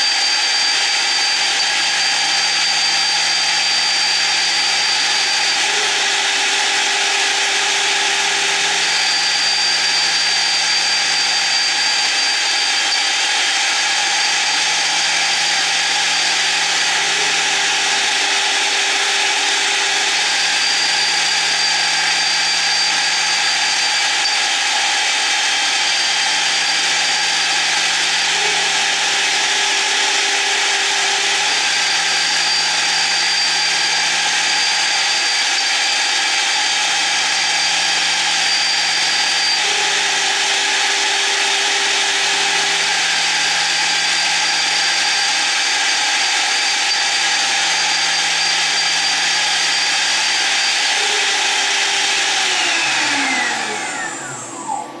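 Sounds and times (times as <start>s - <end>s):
milling spindle whine: 0.0s - 55.0s
axis drive motor tones: 46.6s - 55.0s.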